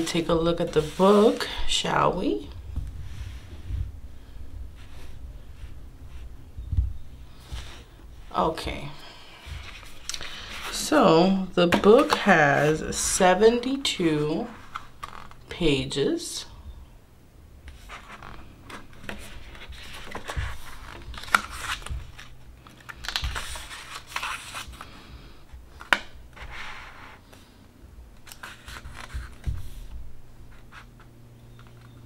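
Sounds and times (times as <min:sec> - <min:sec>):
book pages turning: 0:00.0 - 0:01.6, 0:09.5 - 0:10.8, 0:11.7 - 0:13.0, 0:17.7 - 0:25.0, 0:28.2 - 0:32.0.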